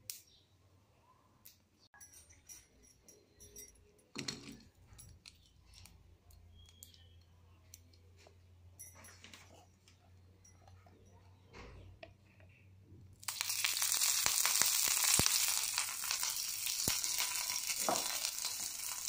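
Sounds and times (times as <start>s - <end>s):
faint clicks of chillies: 0.0s - 0.4s, 1.4s - 1.8s, 4.8s - 8.6s
chillies clattering into pan: 13.3s - 19.0s.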